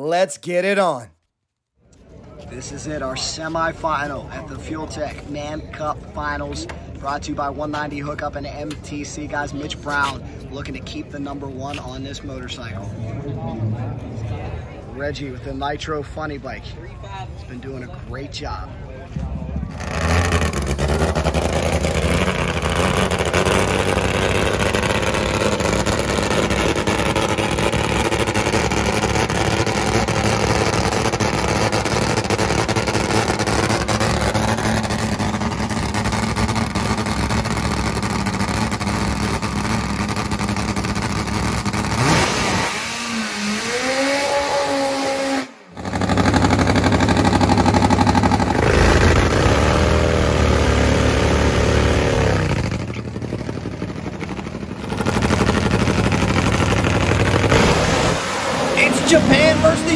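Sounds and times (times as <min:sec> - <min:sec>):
drag motorcycle engine running: 0:19.6 - 0:59.9.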